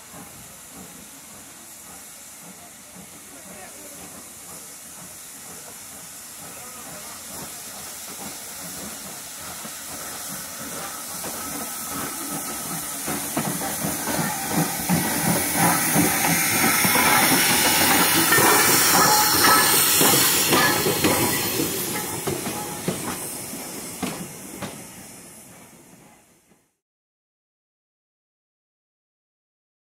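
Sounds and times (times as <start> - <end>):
steam locomotive hissing: 0.0 - 26.8.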